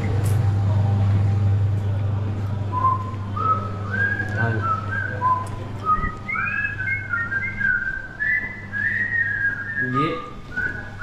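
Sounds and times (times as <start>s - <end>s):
steady low hum: 0.0s - 11.0s
person whistling a tune: 2.7s - 11.0s.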